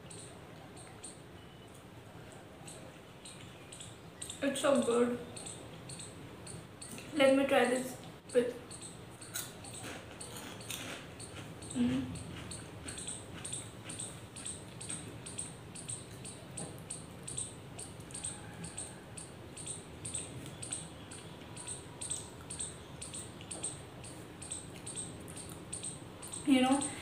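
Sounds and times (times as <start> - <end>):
crisp chips being chewed: 9.3 - 15.1.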